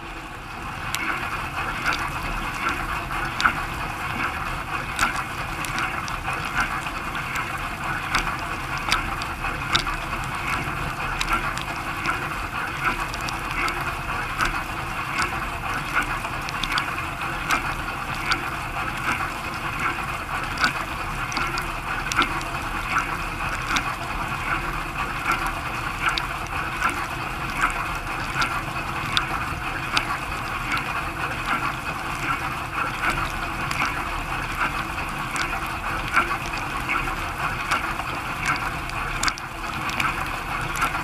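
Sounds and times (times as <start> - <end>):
low steady hum: 0.0 - 41.0.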